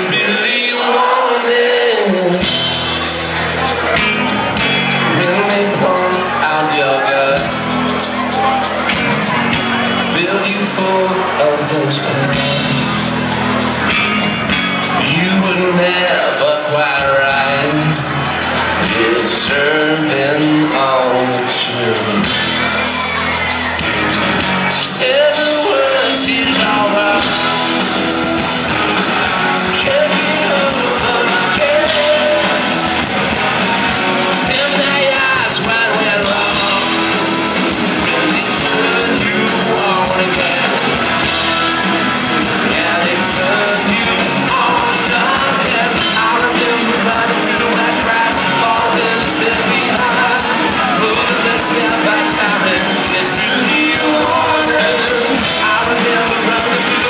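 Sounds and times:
live rock band playing: 0.0s - 57.0s
male lead vocals: 0.0s - 57.0s.

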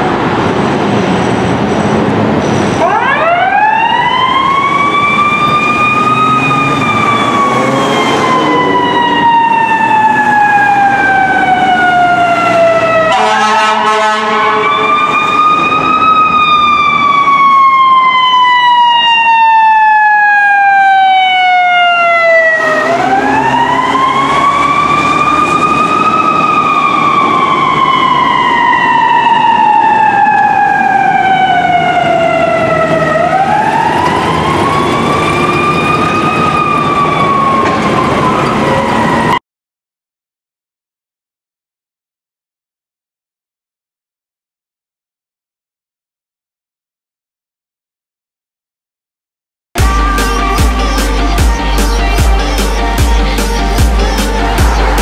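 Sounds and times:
fire engine siren wailing: 0.0s - 39.4s, 49.8s - 55.0s
horn blast: 13.0s - 14.9s, 49.8s - 55.0s.

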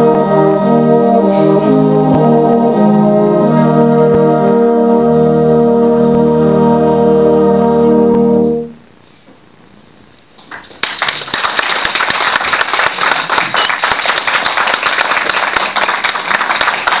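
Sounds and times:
audience applause: 10.4s - 17.0s.

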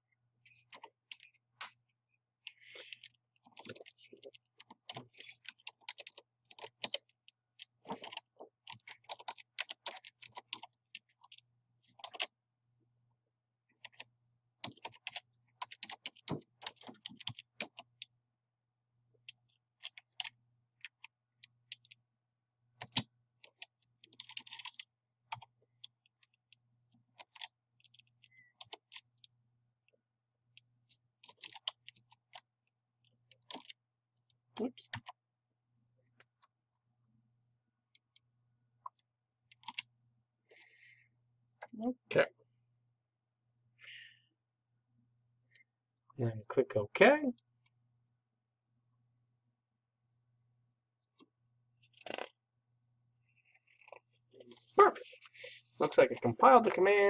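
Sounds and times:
computer keyboard typing: 2.4s - 12.4s, 13.8s - 18.1s, 19.2s - 22.0s, 22.8s - 29.3s, 30.5s - 32.5s, 33.1s - 33.8s, 34.6s - 35.2s, 38.9s - 39.9s.

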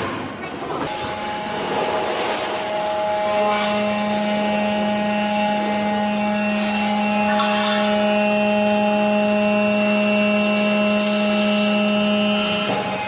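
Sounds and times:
hydraulic press humming: 0.0s - 13.0s.

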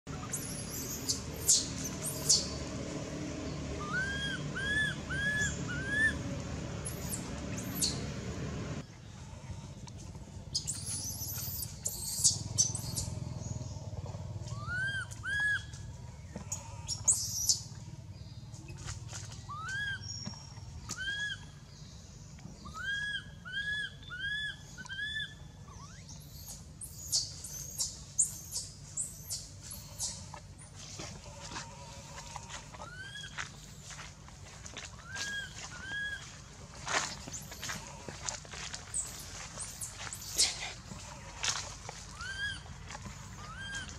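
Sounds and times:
infant monkey squealing: 0.1s - 2.5s, 3.8s - 6.2s, 10.6s - 13.1s, 14.5s - 15.7s, 19.5s - 20.1s, 20.9s - 21.5s, 22.6s - 29.4s, 32.8s - 33.3s, 35.0s - 36.2s, 42.1s - 42.6s, 43.3s - 43.9s
infant monkey shrieking: 3.8s - 6.2s, 14.5s - 15.7s, 19.5s - 20.0s, 21.0s - 21.4s, 22.6s - 27.8s, 35.0s - 36.2s, 42.1s - 42.6s, 43.4s - 43.9s.

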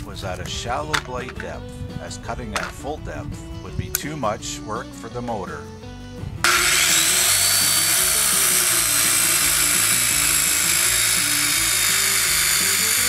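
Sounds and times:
circular saw cutting timber: 6.4s - 13.0s.

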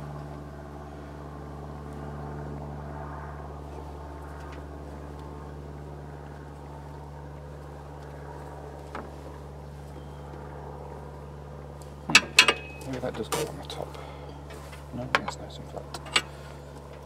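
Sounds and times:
low mechanical hum: 0.0s - 17.0s
metallic clank of tools: 12.1s - 13.0s.

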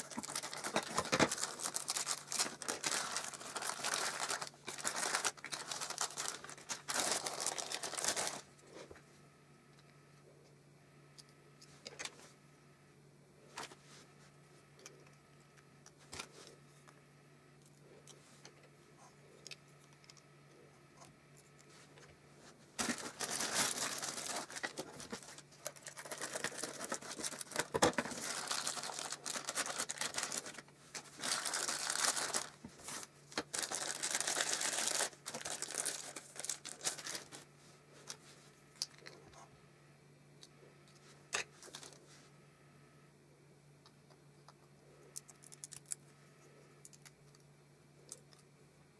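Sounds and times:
tissue paper crinkling and tearing: 0.0s - 8.5s, 22.8s - 37.5s, 41.6s - 42.0s.

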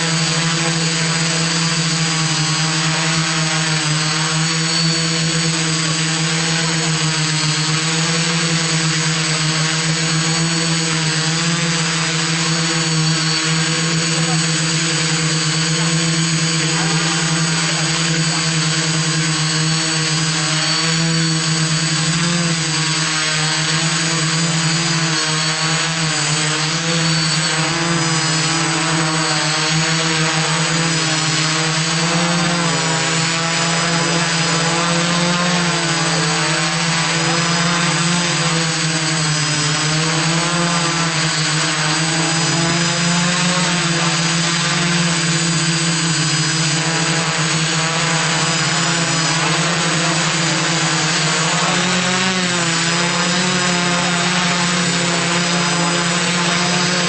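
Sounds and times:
quadcopter propellers whining: 0.0s - 57.0s.

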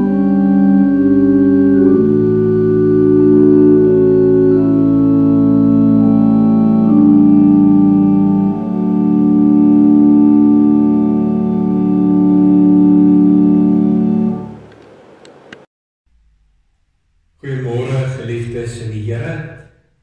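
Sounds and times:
organ playing slow chords: 0.0s - 15.5s.

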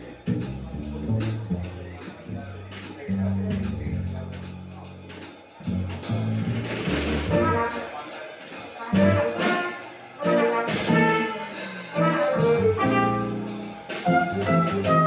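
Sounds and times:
upright double bass: 0.0s - 7.9s, 8.9s - 15.0s
drum kit: 0.0s - 15.0s
trumpet melody: 7.3s - 8.0s, 8.8s - 15.0s.

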